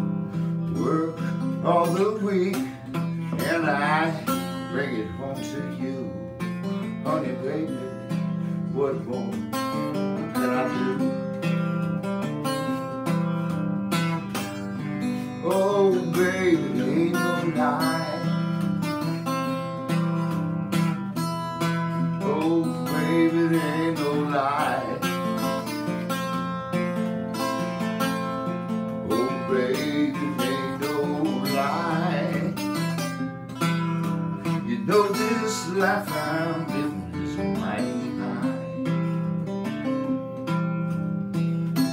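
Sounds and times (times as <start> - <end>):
acoustic guitar blues: 0.0 - 41.9
man singing: 0.6 - 11.3, 15.3 - 18.9, 22.0 - 25.7, 29.0 - 33.1, 34.4 - 39.0.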